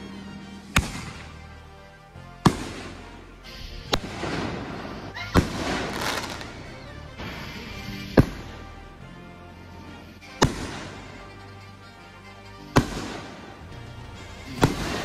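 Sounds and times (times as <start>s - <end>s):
background music: 0.0s - 15.0s
fireworks bangs: 0.7s - 1.4s, 2.4s - 3.3s, 3.9s - 8.7s, 10.4s - 11.2s, 12.8s - 13.6s, 14.6s - 15.0s.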